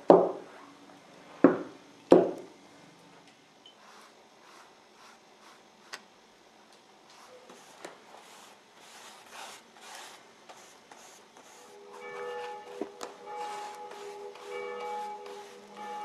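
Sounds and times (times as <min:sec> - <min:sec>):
paintbrush swishing on paper: 0:03.8 - 0:06.0, 0:07.1 - 0:16.0.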